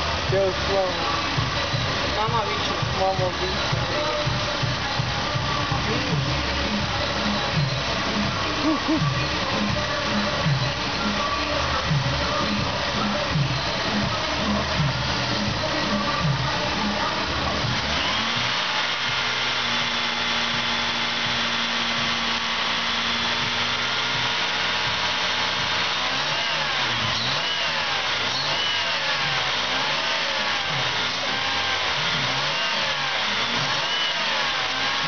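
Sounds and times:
car engine idling and revving: 0:00.0 - 0:35.0.

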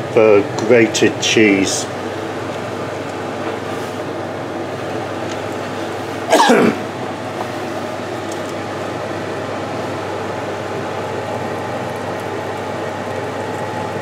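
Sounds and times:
person grunting: 0:06.3 - 0:06.9.

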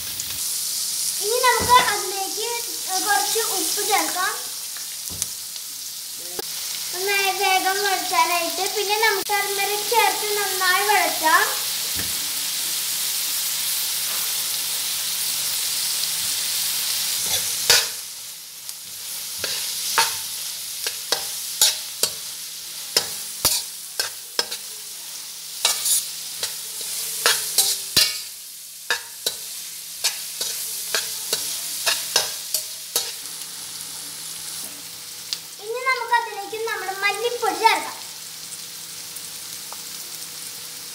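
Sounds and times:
vegetables sizzling in oil: 0:00.0 - 0:40.9
spatula scraping a pan: 0:25.6 - 0:28.3, 0:28.9 - 0:33.2.

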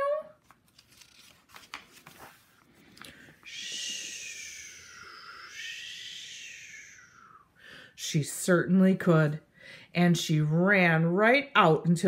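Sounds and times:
page turning rustle: 0:00.4 - 0:03.2
person whispering a hiss: 0:03.5 - 0:07.4.

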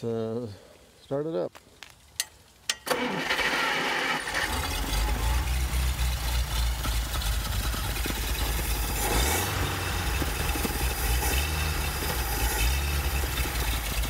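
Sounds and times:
car engine revving by hand: 0:03.3 - 0:14.0.

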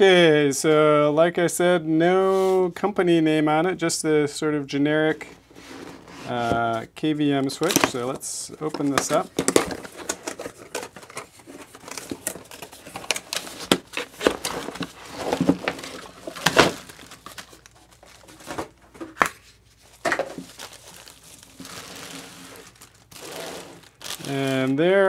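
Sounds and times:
bubble wrap and plastic crinkling: 0:07.4 - 0:25.0.

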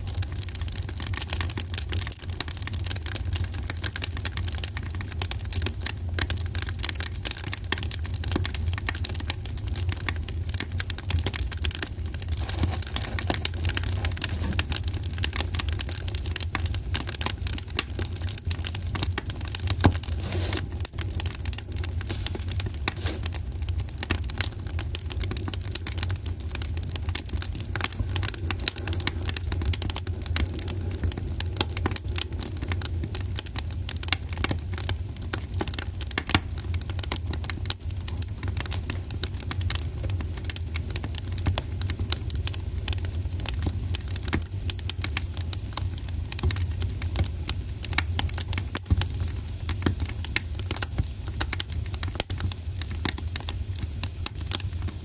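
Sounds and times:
wood fire crackling and popping: 0:00.0 - 0:55.0
low steady rumble: 0:09.2 - 0:36.0.

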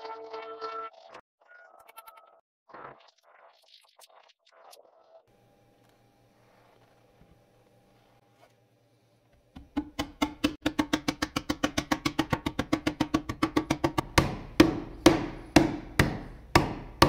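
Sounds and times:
fist knocking on wooden board: 0:09.6 - 0:17.0.

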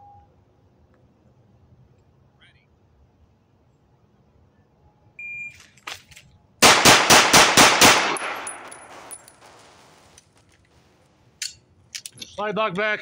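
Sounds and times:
pistol shots echoing: 0:06.6 - 0:09.6.

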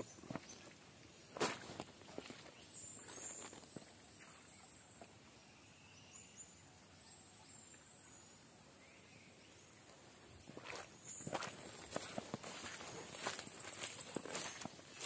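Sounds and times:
footsteps through grass and leaves: 0:00.0 - 0:04.3, 0:09.9 - 0:15.0
faint bird chirps: 0:02.1 - 0:15.0.

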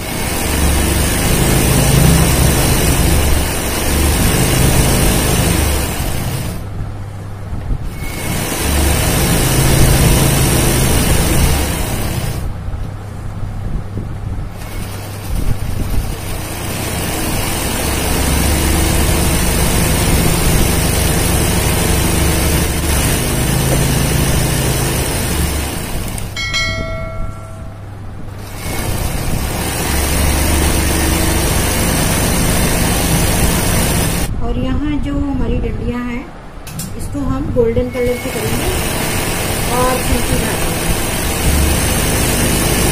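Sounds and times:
electric sewing machine stitching: 0:00.0 - 0:06.6, 0:07.9 - 0:12.5, 0:14.6 - 0:26.4, 0:28.4 - 0:34.3, 0:37.9 - 0:42.9.

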